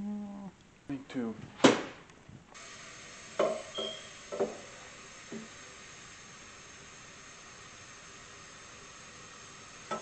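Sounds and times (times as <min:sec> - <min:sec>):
tap water running into pot: 0:03.3 - 0:08.7.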